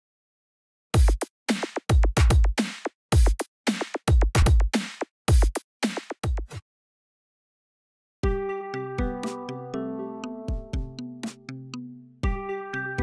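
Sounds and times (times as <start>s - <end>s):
drum machine beat: 1.0s - 6.6s, 9.0s - 9.4s, 10.4s - 11.6s, 12.2s - 12.4s.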